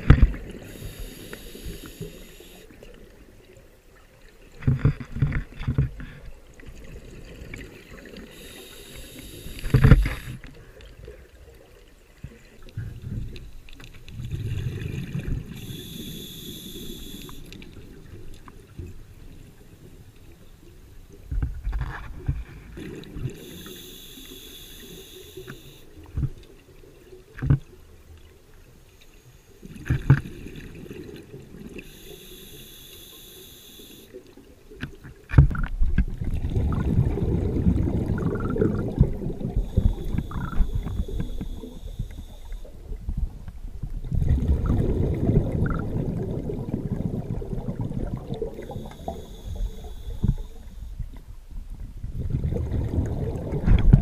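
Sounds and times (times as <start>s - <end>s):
diver inhaling through regulator: 0.4s - 2.7s, 8.2s - 10.5s, 15.4s - 17.5s, 23.3s - 25.9s, 31.8s - 34.2s, 39.3s - 42.8s, 48.4s - 51.0s
bubbling exhales: 36.4s - 42.7s.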